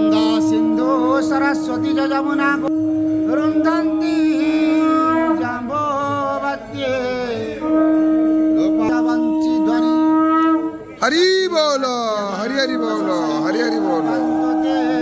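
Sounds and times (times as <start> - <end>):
person chanting a devotional hymn: 3.2 - 7.8, 12.4 - 15.0.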